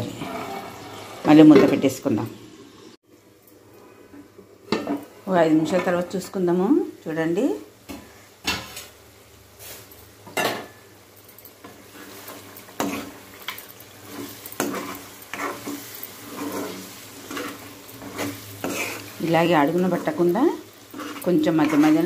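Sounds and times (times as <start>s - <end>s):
food sizzling: 0.0s - 22.0s
spoon scraping and knocking pan: 11.6s - 22.0s.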